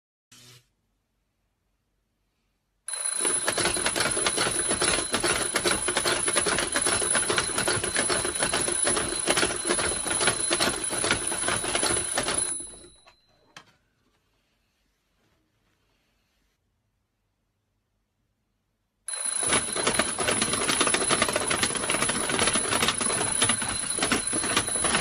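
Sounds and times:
alarm clock bells ringing: 0:02.9 - 0:13.5, 0:19.1 - 0:25.0.

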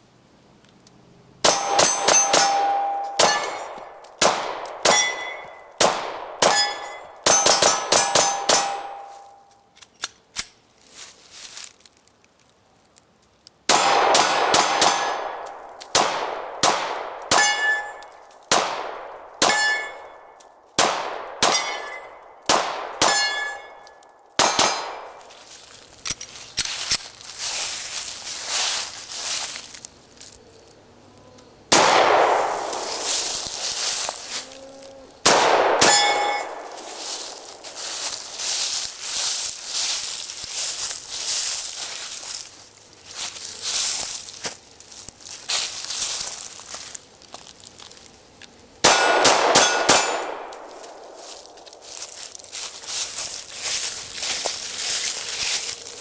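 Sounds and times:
pistol shots: 0:01.4 - 0:09.2, 0:13.7 - 0:20.0, 0:20.8 - 0:23.8, 0:24.4 - 0:25.2, 0:31.7 - 0:33.4, 0:35.2 - 0:37.0, 0:48.8 - 0:51.1
steel plate clanging: 0:01.5 - 0:03.8, 0:04.9 - 0:05.6, 0:06.5 - 0:09.4, 0:17.4 - 0:18.0, 0:19.5 - 0:20.2, 0:23.1 - 0:23.8, 0:35.8 - 0:36.6.

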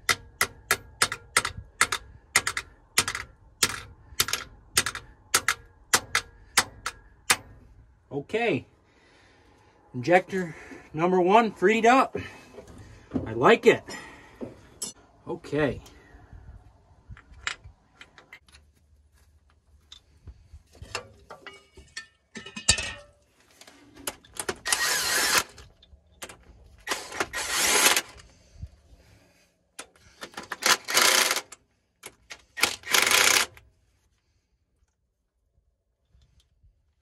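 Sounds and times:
metallic clicks of hand tools: 0:00.0 - 0:07.6.

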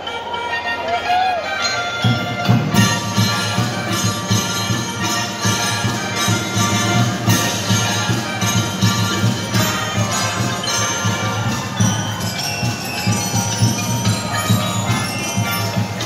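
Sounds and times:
mallet keyboard instruments: 0:00.0 - 0:16.0
melodicas playing chords: 0:00.0 - 0:16.0
pulsing drum beat: 0:02.0 - 0:16.0.

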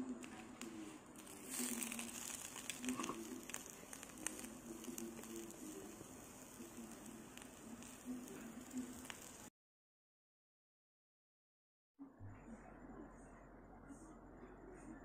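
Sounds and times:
small pops of frying: 0:00.1 - 0:09.5
bread sizzling in a pan: 0:00.2 - 0:09.5
faint low hum: 0:12.0 - 0:15.0.

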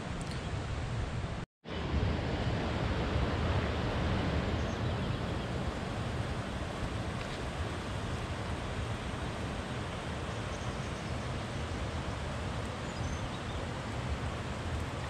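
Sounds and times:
river water rushing: 0:01.7 - 0:15.0.

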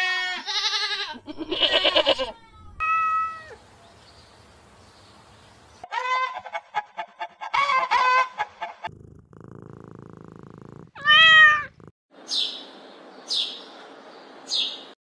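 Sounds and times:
cat meowing: 0:00.0 - 0:03.6, 0:11.0 - 0:11.8
cat purring: 0:08.9 - 0:11.9.

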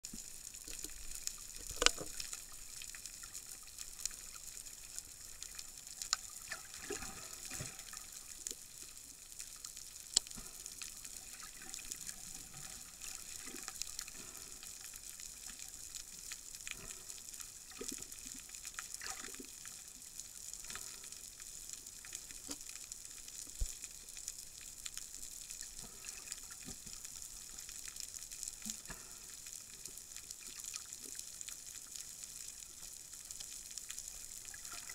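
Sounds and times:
faint underwater clicks and crackles: 0:00.0 - 0:34.9
underwater hiss: 0:10.2 - 0:18.4, 0:28.6 - 0:30.6.

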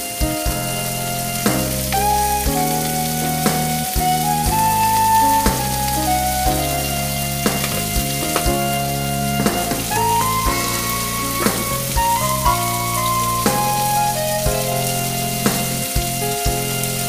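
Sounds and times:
background music with a beat: 0:00.0 - 0:17.0
burger patties sizzling in a pan: 0:00.0 - 0:17.0.

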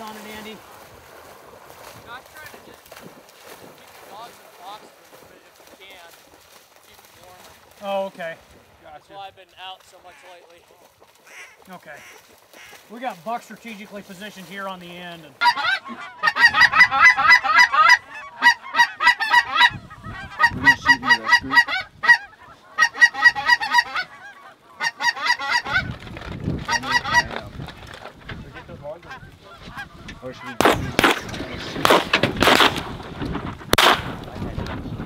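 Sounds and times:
geese honking: 0:09.9 - 0:14.3, 0:15.4 - 0:26.0, 0:26.6 - 0:27.4, 0:28.4 - 0:32.8.

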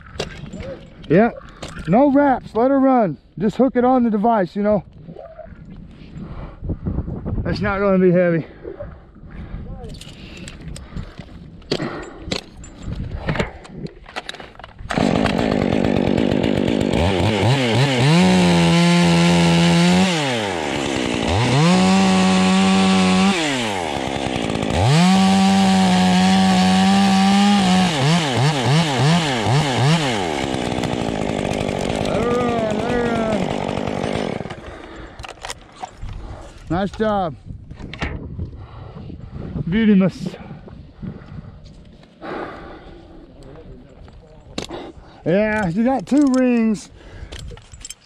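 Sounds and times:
chainsaw revving and idling: 0:14.9 - 0:35.2.

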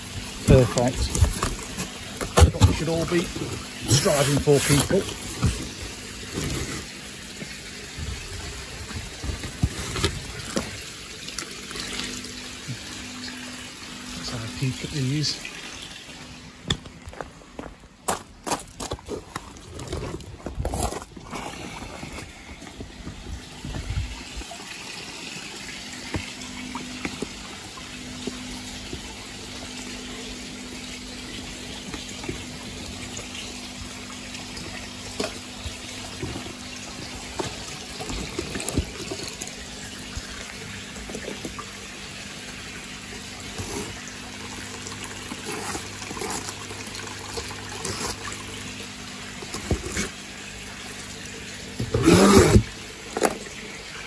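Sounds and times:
trickling water: 0:00.0 - 0:54.0.

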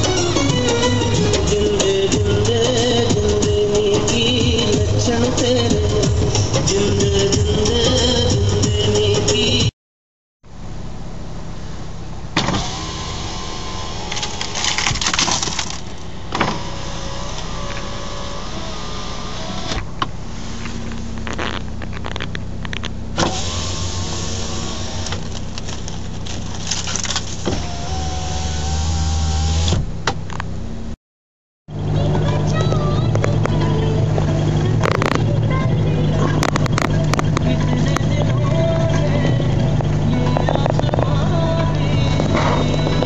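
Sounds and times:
car engine idling: 0:00.0 - 0:09.7, 0:10.5 - 0:31.0, 0:31.7 - 0:43.0
power window motor whining: 0:12.4 - 0:30.5, 0:31.8 - 0:43.0
ice cracking: 0:14.1 - 0:16.0.

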